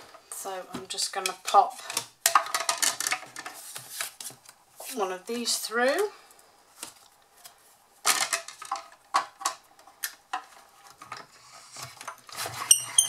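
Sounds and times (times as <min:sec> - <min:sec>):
plastic and metal plates clacking: 0:01.1 - 0:03.8, 0:08.0 - 0:13.0.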